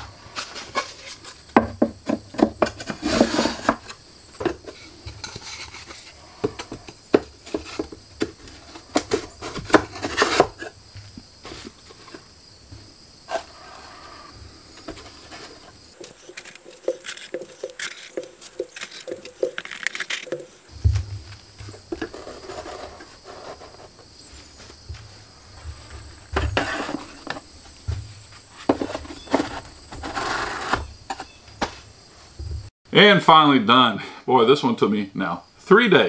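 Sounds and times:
knocks and rattles of sander: 0.5s - 12.9s
paper scraping on wood: 22.0s - 24.0s.

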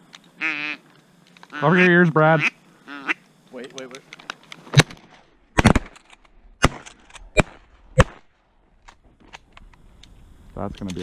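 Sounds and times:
shotgun shots: 4.8s - 6.0s, 6.6s - 8.3s.

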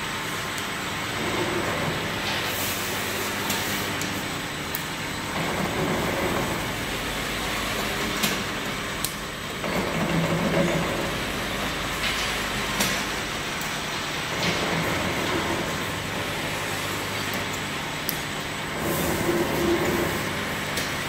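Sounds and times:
capping machine clattering: 7.7s - 21.0s.

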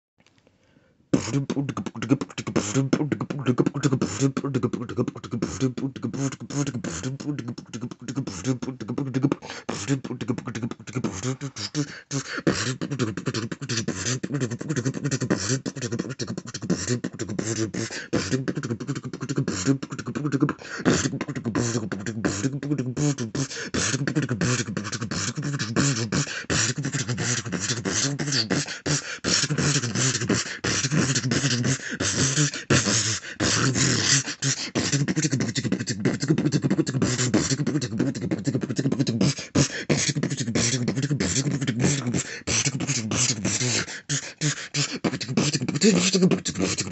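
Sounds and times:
person beatboxing: 1.1s - 46.9s.

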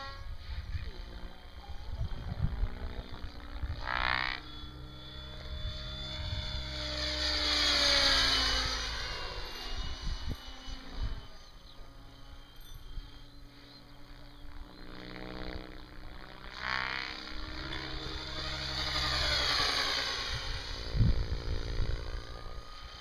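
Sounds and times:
rc helicopter rotor whine: 0.0s - 23.0s
wind gust on microphone: 0.3s - 4.1s, 20.2s - 22.3s.

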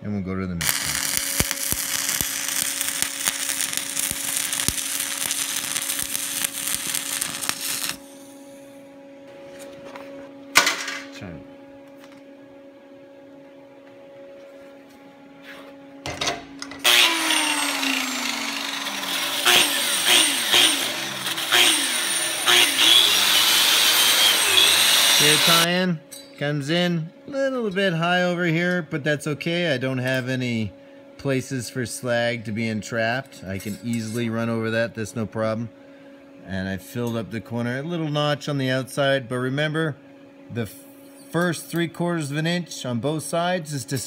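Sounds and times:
low hum: 0.0s - 29.3s
welding arc crackling: 0.6s - 8.3s, 16.8s - 25.7s.

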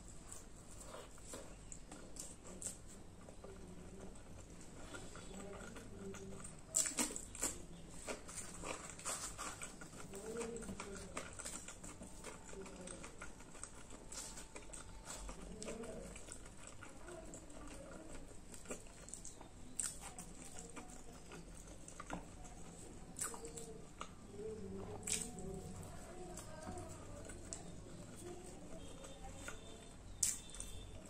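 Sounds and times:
wet chewing and lip smacks: 0.2s - 30.9s.

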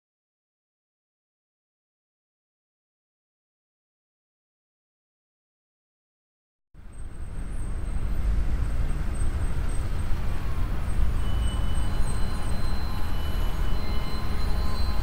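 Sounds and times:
truck engine and road rumble: 6.8s - 15.0s.

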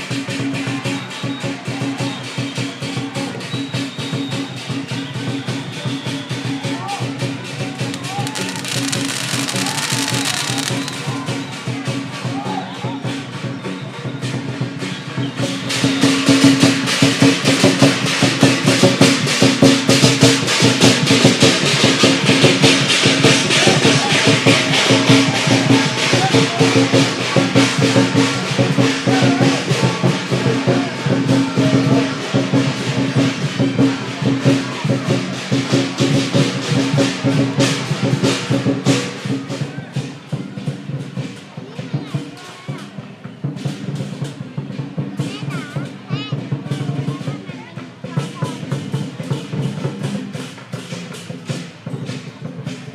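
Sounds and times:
drum beating: 1.6s - 52.9s
crashing cymbals: 4.3s - 12.3s.

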